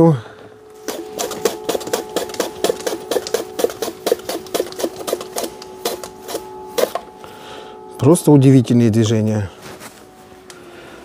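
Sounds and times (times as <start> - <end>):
steady hum: 0.0 - 11.0
mandoline slicer clicking strokes: 0.8 - 7.0.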